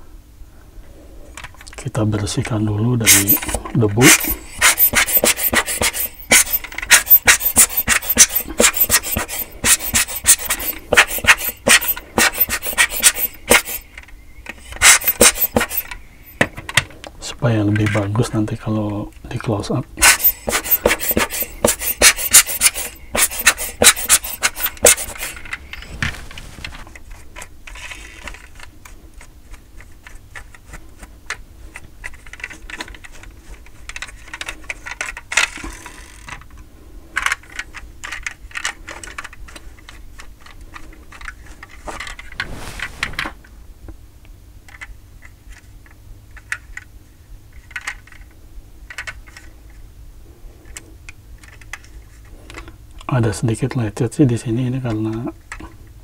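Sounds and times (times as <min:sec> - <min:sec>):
brush scrubbing metal: 0:03.1 - 0:13.8, 0:20.1 - 0:25.6
short rustle: 0:24.4 - 0:27.0, 0:41.9 - 0:43.9
toy cars clicking on tabletop: 0:33.9 - 0:36.4.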